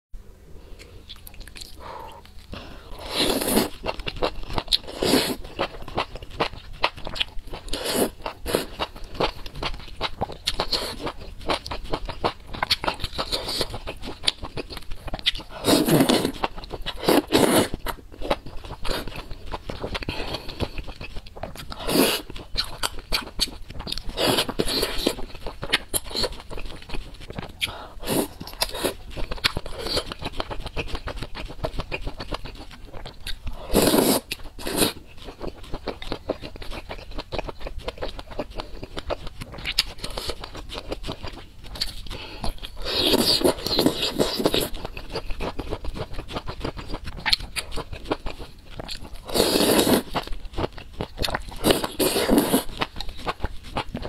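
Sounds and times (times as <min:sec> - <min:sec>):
wet chewing: 0:00.8 - 0:54.0
slurping: 0:33.7 - 0:35.0, 0:49.2 - 0:50.2, 0:51.6 - 0:52.8.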